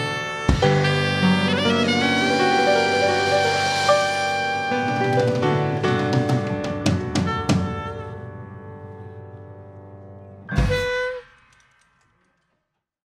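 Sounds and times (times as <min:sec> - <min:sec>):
live band playing: 0:00.0 - 0:08.1.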